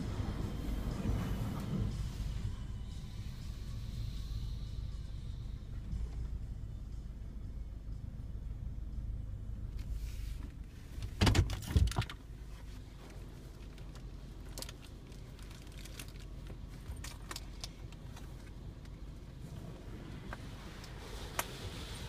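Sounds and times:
faint low rumble: 0.0 - 22.0
sharp clicks and rattles: 11.0 - 12.2.

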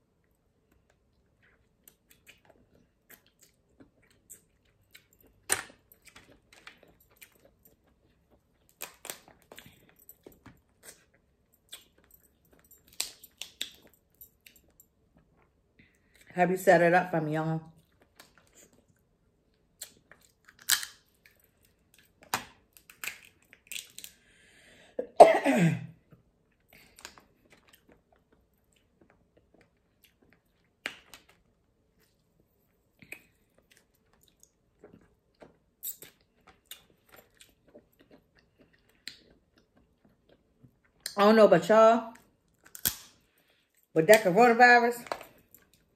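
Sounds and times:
chewing: 0.7 - 16.3, 26.1 - 41.1
crab shells cracking: 19.8 - 21.1, 22.2 - 24.2, 42.6 - 43.2.

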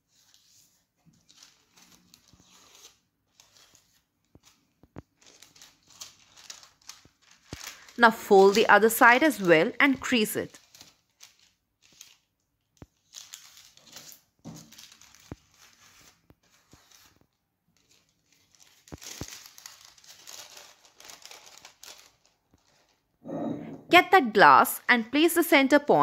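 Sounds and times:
baking paper rustling and crinkling: 0.0 - 23.2.

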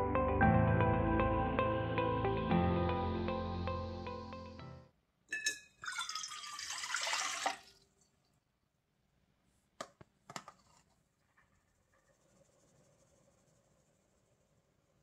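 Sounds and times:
water poured into container: 5.7 - 8.0.

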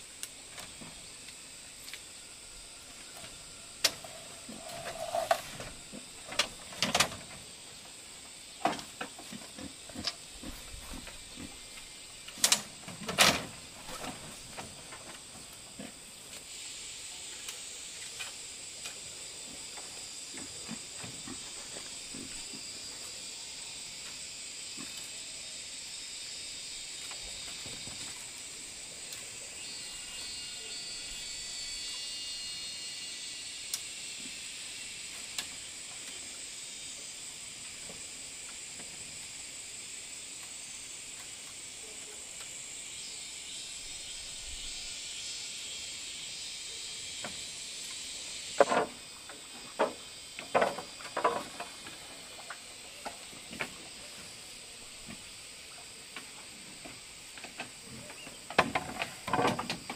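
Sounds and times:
high-pitched insect chorus: 0.0 - 59.9
bamboo poles clattering: 3.9 - 7.4, 12.3 - 15.9, 48.6 - 53.8, 57.3 - 59.9.

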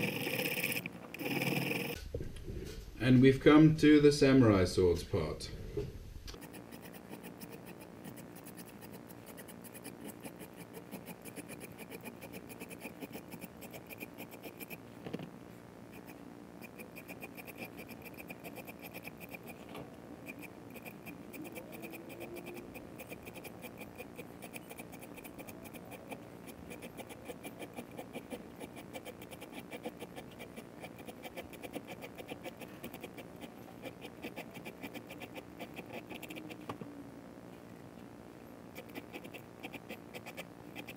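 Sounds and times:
files scraping metal frets: 6.4 - 14.8, 16.0 - 19.6, 20.3 - 36.6.

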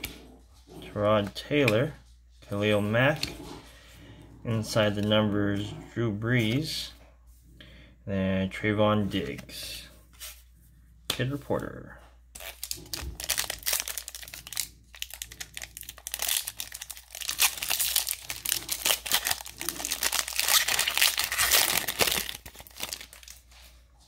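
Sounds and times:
foil wrapper crinkling: 12.4 - 23.4.

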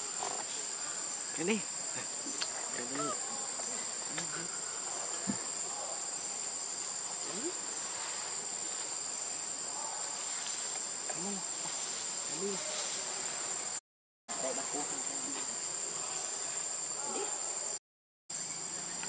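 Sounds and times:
insects droning: 0.0 - 19.0.

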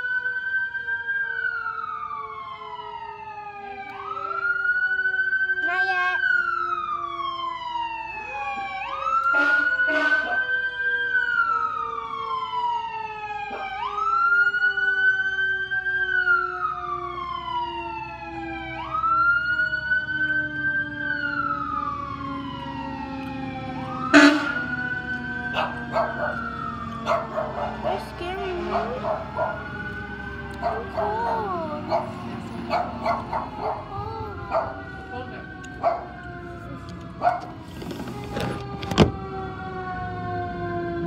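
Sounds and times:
fire engine siren wailing: 0.0 - 41.0
short loud horn blasts: 9.3 - 10.4, 24.1 - 24.7.

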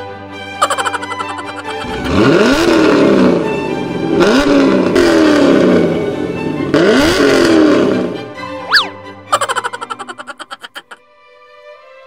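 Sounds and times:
exhaust noise: 0.6 - 8.4
car engine revving: 1.8 - 8.6.

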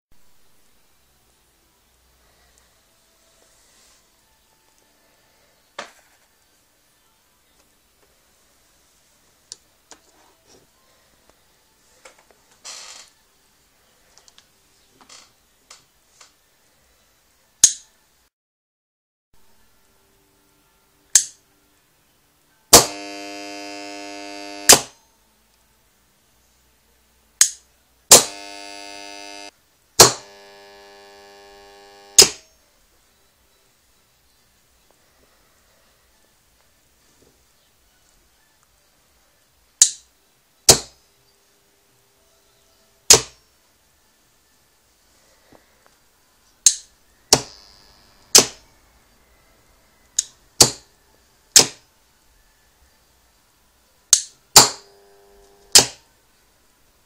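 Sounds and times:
sharp click: 17.6 - 17.8, 31.8 - 32.4, 46.7 - 47.6, 48.3 - 48.6, 54.1 - 56.0
faint electrical buzz: 22.7 - 25.0, 28.1 - 32.8, 46.9 - 51.8, 54.3 - 56.9
coil humming: 22.8 - 24.8, 28.1 - 32.2, 47.4 - 48.4, 54.8 - 55.8.

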